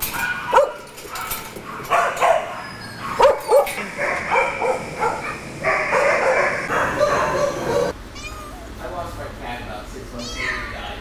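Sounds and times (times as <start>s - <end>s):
dogs barking: 0.0s - 8.0s.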